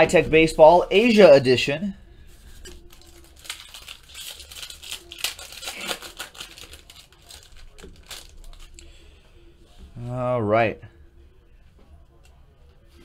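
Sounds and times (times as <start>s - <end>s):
card pack wrapper crinkling and tearing: 2.7s - 8.9s.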